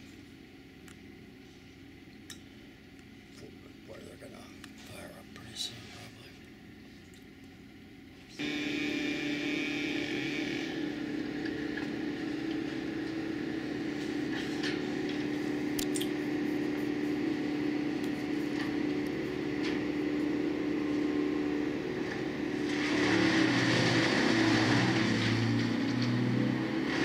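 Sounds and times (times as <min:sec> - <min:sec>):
wood chipper running: 0:06.4 - 0:27.0.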